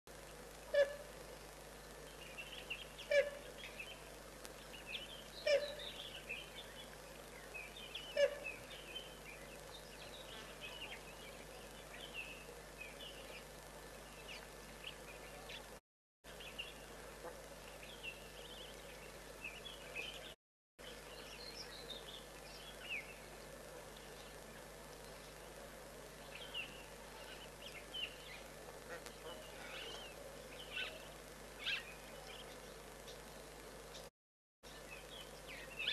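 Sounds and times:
sharp bird calls: 4.8s - 6.6s.

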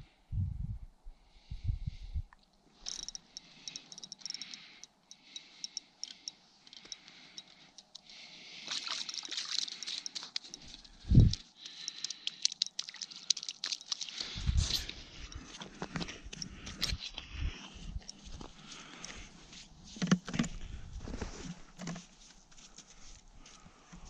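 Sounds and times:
fishing reel clicking: 2.8s - 8.0s, 9.1s - 15.4s.

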